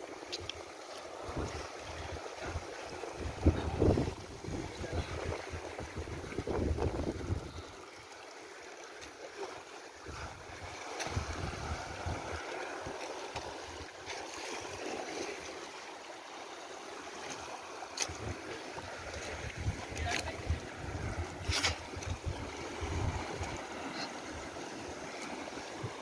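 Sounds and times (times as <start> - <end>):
water lapping around boat: 0.0 - 26.0
wind on microphone: 1.2 - 7.7, 10.1 - 12.5, 18.1 - 24.5.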